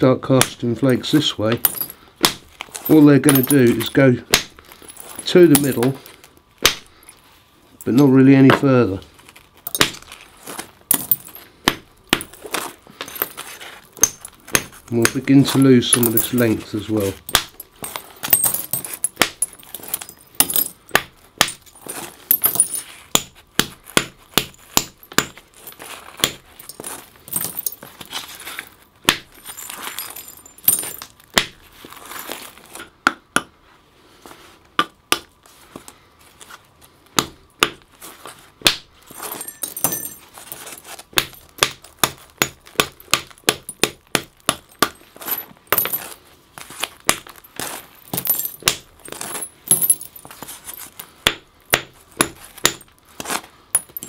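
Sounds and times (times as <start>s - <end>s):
antler hammer knocking flint: 9.6s - 10.1s, 14.0s - 16.5s.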